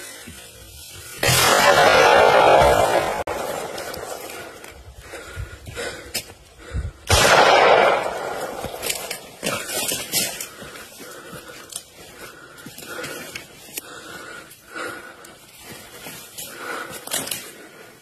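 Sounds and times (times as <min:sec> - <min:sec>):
loud gunshot: 0:01.2 - 0:04.1, 0:07.1 - 0:09.0.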